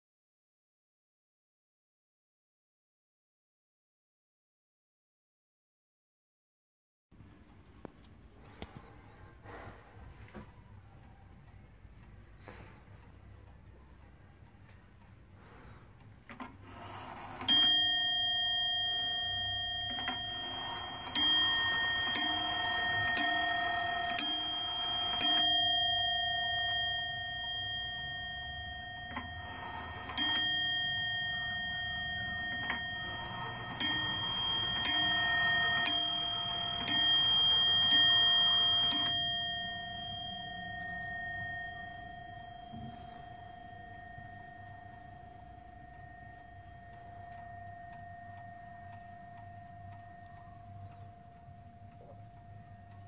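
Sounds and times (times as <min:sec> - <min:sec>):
wall clock bell striking: 0:16.7 - 0:53.0.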